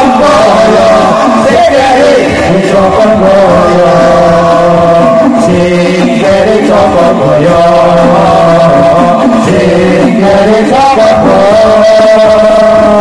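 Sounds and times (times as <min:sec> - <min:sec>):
men chanting through a pa: 0:00.0 - 0:13.0.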